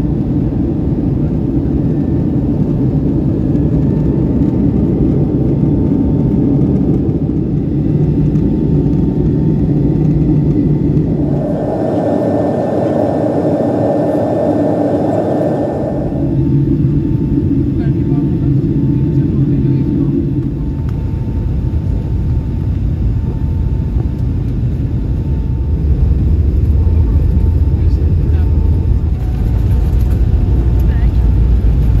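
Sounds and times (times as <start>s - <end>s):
airliner cabin rumble: 0.0s - 32.0s
higher rushing sound: 10.6s - 20.6s.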